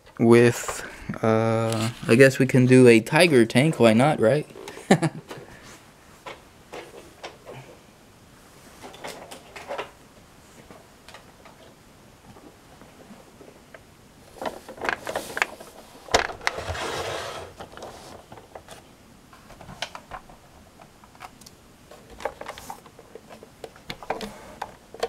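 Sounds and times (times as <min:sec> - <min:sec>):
toy tank scraping on table: 0:16.5 - 0:17.6.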